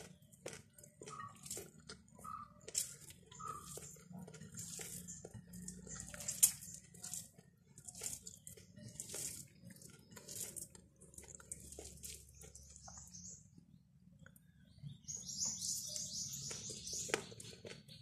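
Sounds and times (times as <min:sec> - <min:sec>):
fingers squishing wet rice: 0:00.0 - 0:13.5, 0:15.8 - 0:18.0.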